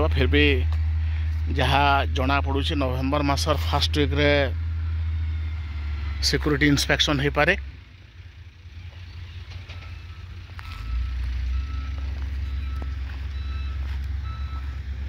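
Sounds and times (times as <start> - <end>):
reversing alarm beeps: 8.8 - 15.0.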